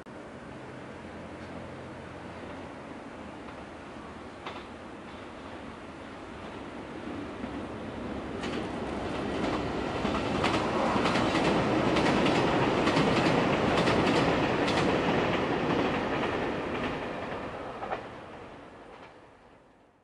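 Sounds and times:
diesel train passing: 0.1s - 20.0s
rail joints clicking: 4.4s - 5.7s, 8.3s - 19.2s.

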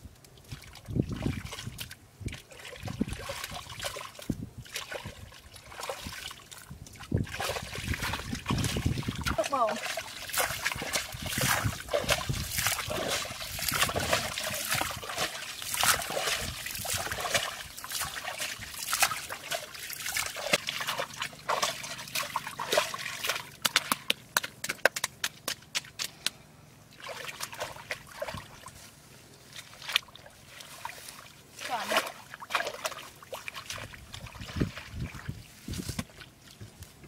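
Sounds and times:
wet mud sloshing and splattering: 0.5s - 26.1s, 26.9s - 28.8s, 29.5s - 36.6s
sharp slaps and clicks: 23.6s - 26.4s.

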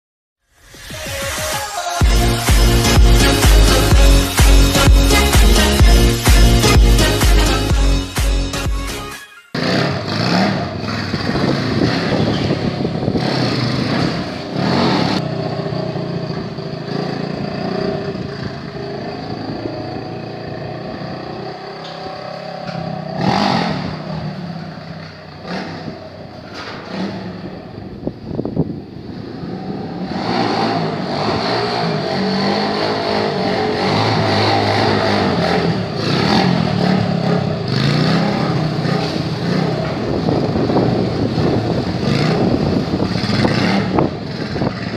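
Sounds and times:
dirt motorcycles revving: 1.2s - 44.9s.

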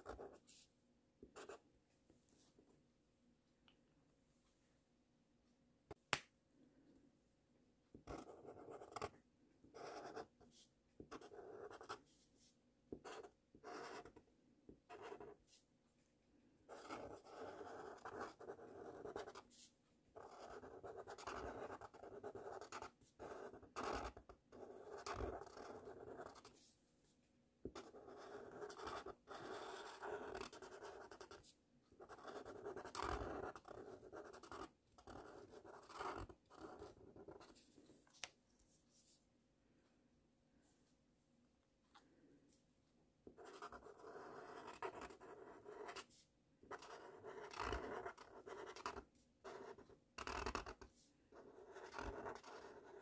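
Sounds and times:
felt-tip marker scratching on paper: 9.8s - 10.4s, 11.0s - 12.0s, 13.0s - 14.1s, 16.7s - 19.6s, 20.2s - 26.6s, 27.7s - 31.4s, 32.0s - 37.6s, 43.4s - 53.0s.

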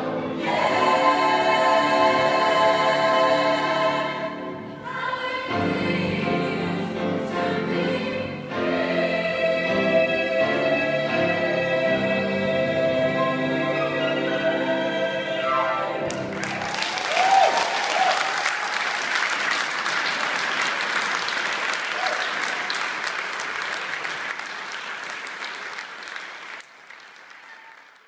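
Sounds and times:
choir holding final chord: 0.0s - 16.4s
audience applauding: 16.1s - 28.0s.

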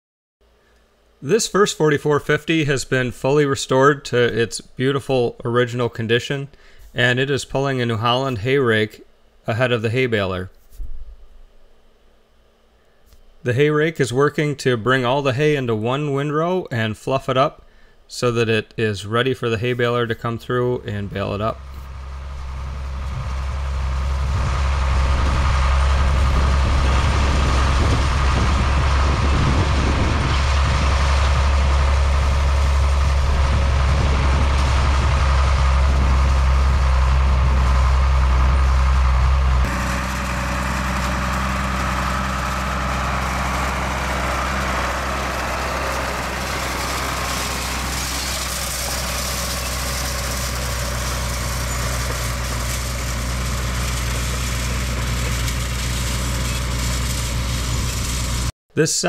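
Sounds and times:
tractor diesel engine running: 19.4s - 58.5s.

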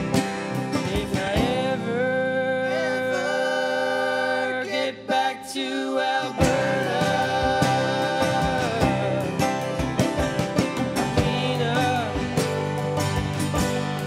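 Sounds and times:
drums: 0.0s - 2.0s, 6.4s - 14.0s
banjo: 0.0s - 4.9s, 5.6s - 14.0s
acoustic guitar: 0.0s - 14.0s
men singing: 0.6s - 14.0s.

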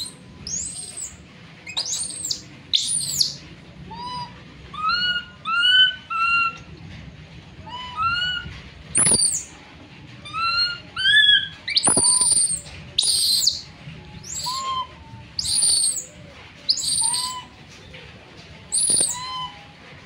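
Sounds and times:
baby monkey low calls: 0.0s - 6.6s, 7.6s - 9.5s, 10.3s - 17.6s, 18.7s - 19.7s
baby monkey screaming: 0.0s - 6.7s, 7.6s - 9.5s, 10.2s - 13.6s, 14.2s - 16.1s, 16.7s - 17.5s, 18.7s - 19.6s.

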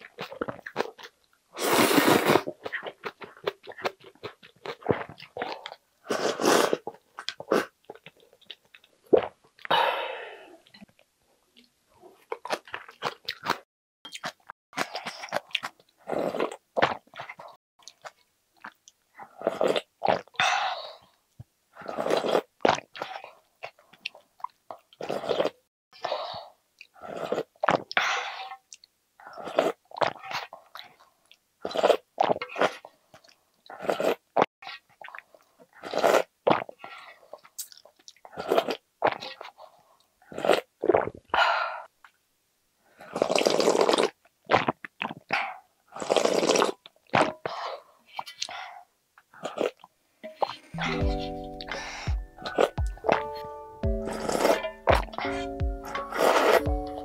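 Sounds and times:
wet chewing: 0.0s - 1.3s, 2.2s - 9.7s, 12.2s - 20.4s, 49.4s - 57.0s
slurping noodles and broth: 0.0s - 8.3s, 12.1s - 21.1s, 21.8s - 23.8s, 25.0s - 31.0s, 31.6s - 32.9s, 33.7s - 41.3s, 43.0s - 48.8s, 49.4s - 53.3s, 54.0s - 57.0s.

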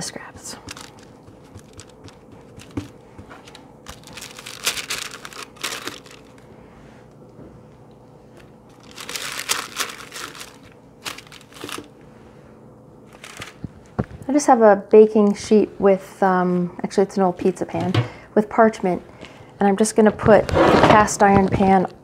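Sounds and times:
baking paper crinkling: 0.4s - 6.4s, 8.7s - 12.0s, 13.1s - 13.9s.

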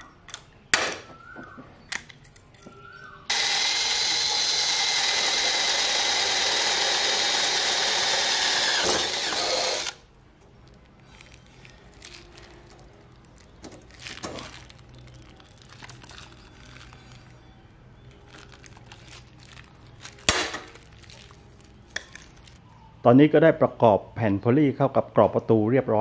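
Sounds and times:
cordless drill boring metal: 3.3s - 10.0s.

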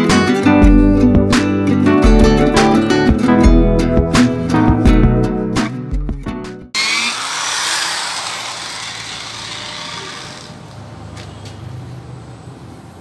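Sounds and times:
car polisher whirring: 6.8s - 10.8s.

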